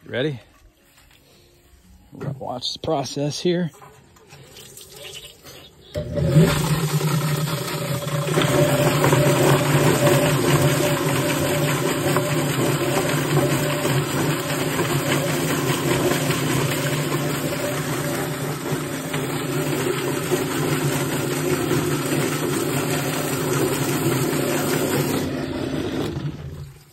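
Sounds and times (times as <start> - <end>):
chicken plucker motor hum: 5.4 - 26.9.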